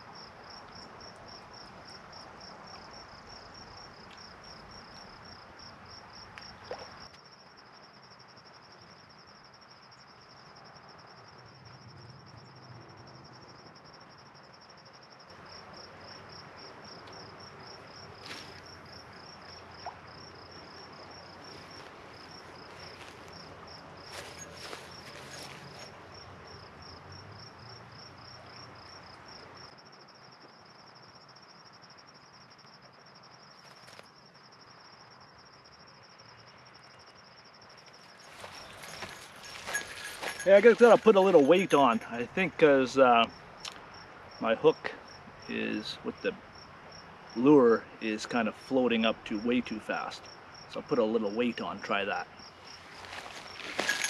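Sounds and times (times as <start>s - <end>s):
river flowing: 15.4s - 26.8s, 38.1s - 42.7s, 52.7s - 54.0s.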